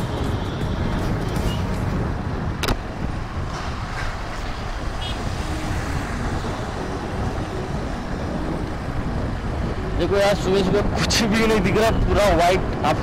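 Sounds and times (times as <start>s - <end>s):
road traffic: 0.0s - 13.0s
wind rushing over microphone: 0.0s - 13.0s.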